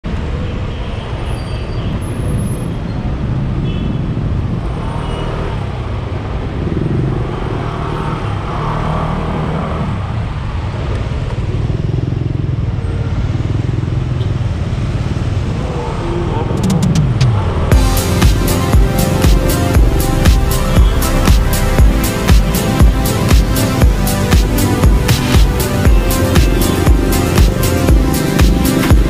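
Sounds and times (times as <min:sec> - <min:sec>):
road traffic: 0:00.0 - 0:29.0
motorcycle engine rumbling: 0:11.1 - 0:29.0.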